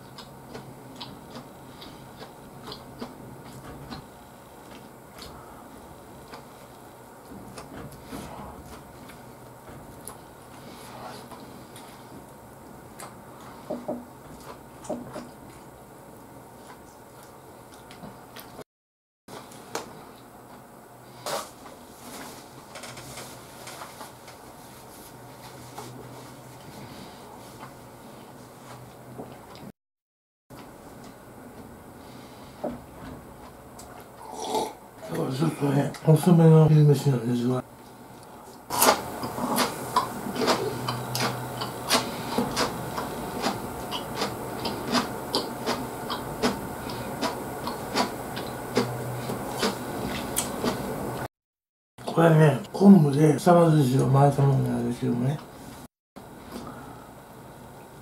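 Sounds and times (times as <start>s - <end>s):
person chewing with wet smacks: 0.0s - 5.4s, 9.9s - 10.2s, 12.9s - 13.2s, 16.6s - 18.6s, 37.8s - 50.8s
faint steady hum: 0.0s - 18.6s, 52.0s - 58.0s.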